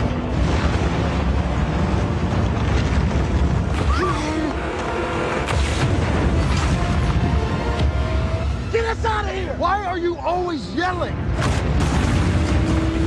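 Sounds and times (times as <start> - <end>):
submarine surging through ice: 0.0 - 7.5
low rumble of vehicle engines: 0.0 - 13.0.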